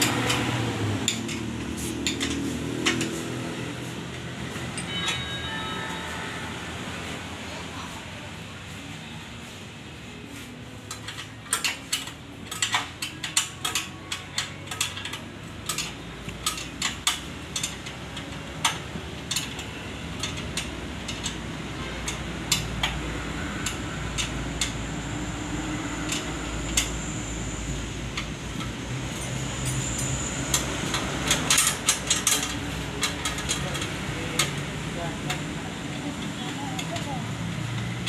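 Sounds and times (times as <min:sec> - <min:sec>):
metallic clicks of hand tools: 0:10.9 - 0:21.4, 0:28.2 - 0:34.6.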